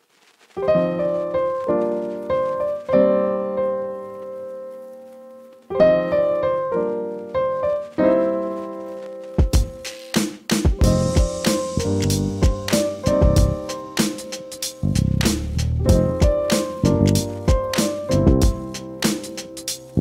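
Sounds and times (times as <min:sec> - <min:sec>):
slow piano chords: 0:00.6 - 0:10.0, 0:10.7 - 0:20.0.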